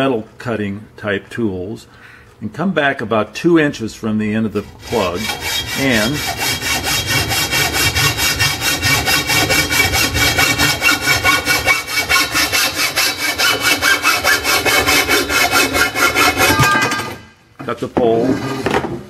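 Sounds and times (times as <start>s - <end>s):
hacksaw cutting metal tube: 4.6s - 17.2s.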